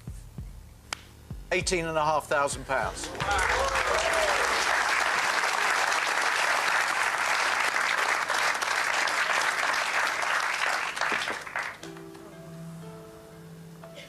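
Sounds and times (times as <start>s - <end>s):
audience applauding: 2.9s - 11.8s.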